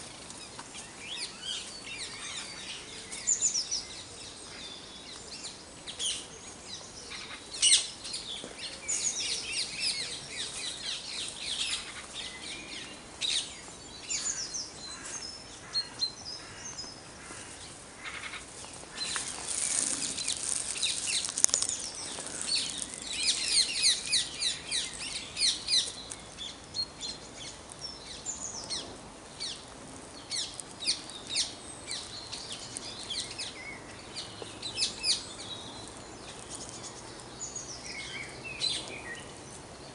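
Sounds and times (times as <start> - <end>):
songbirds singing: 0.0 - 39.9.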